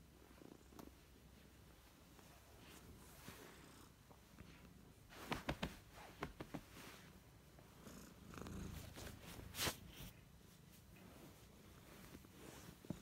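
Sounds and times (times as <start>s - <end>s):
cat purring: 7.6s - 10.2s.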